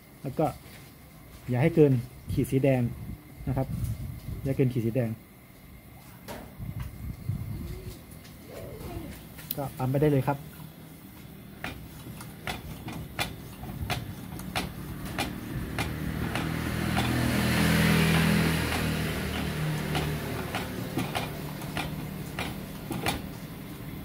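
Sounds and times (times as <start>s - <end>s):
hand air pump clicking: 11.6s - 17.4s, 18.1s - 23.3s
motor vehicle engine passing: 14.3s - 24.0s.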